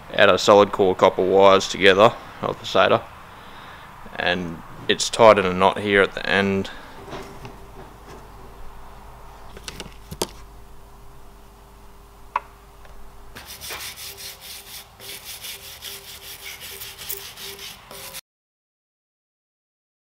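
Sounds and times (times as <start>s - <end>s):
brush scrubbing: 13.4s - 18.2s.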